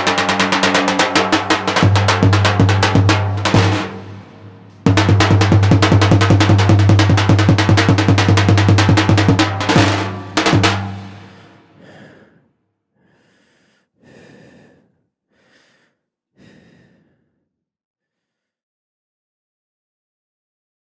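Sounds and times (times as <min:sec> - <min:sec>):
bass drum beaten fast: 0:00.0 - 0:11.6
heavy breaths: 0:11.2 - 0:17.5.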